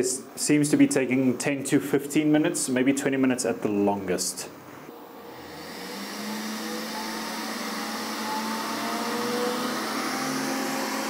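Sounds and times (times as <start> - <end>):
cooling fans whooshing: 4.9 - 11.0
low hum: 4.9 - 11.0.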